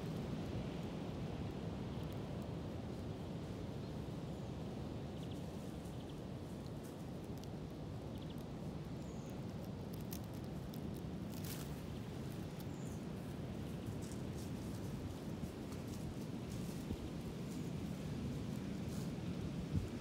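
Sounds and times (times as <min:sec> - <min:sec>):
wind on microphone: 0:18.4 - 0:20.0.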